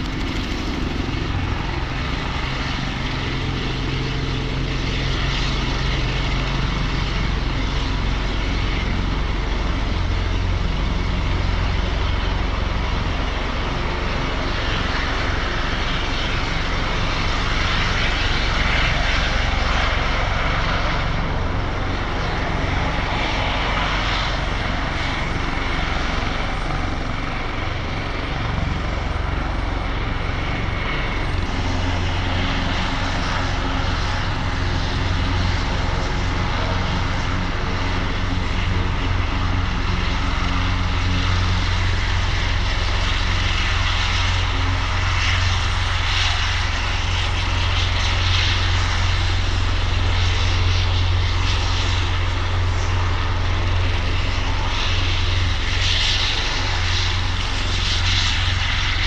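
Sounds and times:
helicopter rotor and turbine noise: 0:00.0 - 0:59.0.

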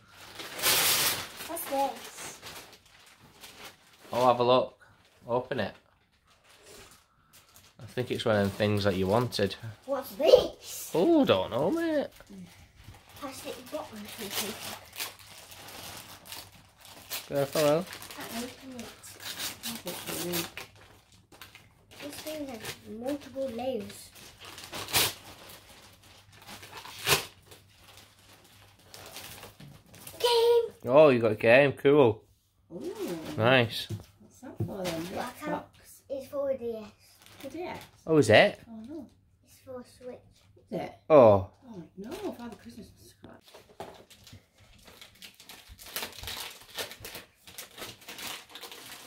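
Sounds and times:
wrapping paper ripping: 0:00.0 - 0:04.4, 0:05.0 - 0:10.1, 0:11.2 - 0:30.6, 0:37.2 - 0:38.0, 0:43.4 - 0:49.0
paper rustling: 0:12.9 - 0:30.4.

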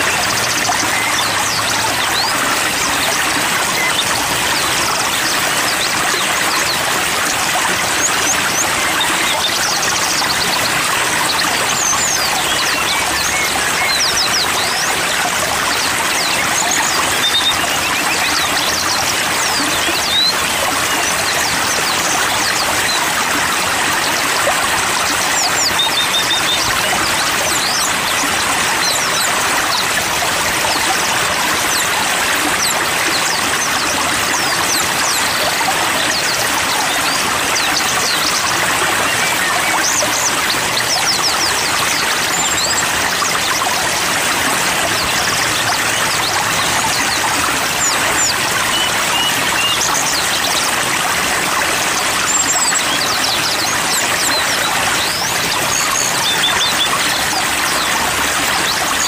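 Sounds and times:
running water rushing: 0:00.0 - 0:59.0
songbirds chirping: 0:00.0 - 0:59.0.

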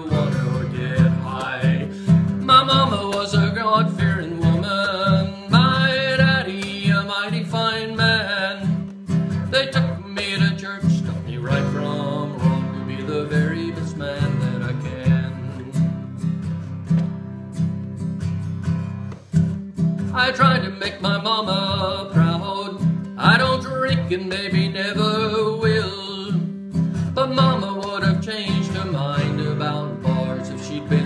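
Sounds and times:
man singing: 0:00.0 - 0:16.1, 0:20.1 - 0:31.0
acoustic guitar strumming: 0:00.0 - 0:31.0.

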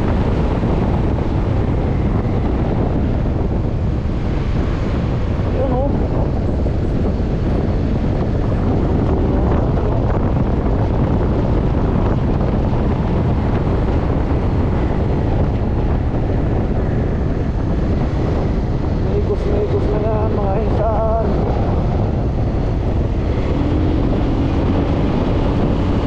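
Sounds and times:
motorcycle engine: 0:00.0 - 0:26.0
road noise: 0:00.0 - 0:26.0
wind on microphone: 0:00.0 - 0:26.0.

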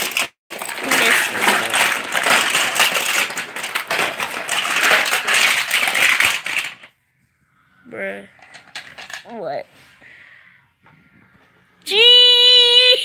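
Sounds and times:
plastic toy cars clattering: 0:00.0 - 0:07.0, 0:08.2 - 0:09.5.

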